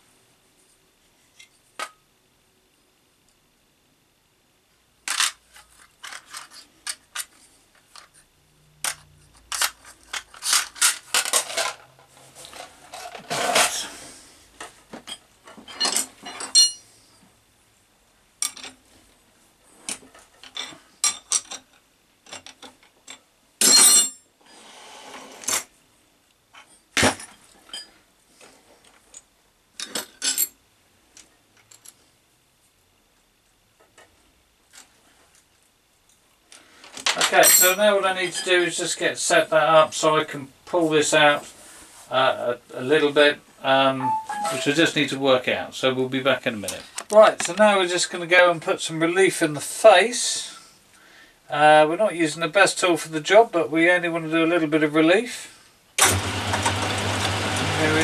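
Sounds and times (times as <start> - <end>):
metal tools clinking: 15.1 - 16.9, 23.6 - 24.2, 37.2 - 38.5.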